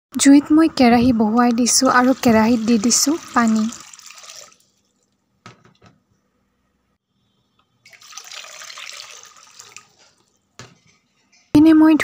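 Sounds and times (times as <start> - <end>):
water pouring into metal pan: 1.9 - 5.2, 7.9 - 10.3.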